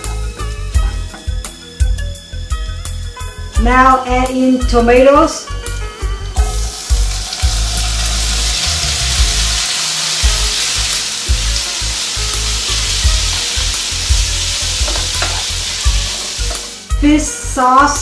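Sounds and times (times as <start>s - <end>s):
tomatoes sizzling in a frying pan: 5.6s - 18.0s.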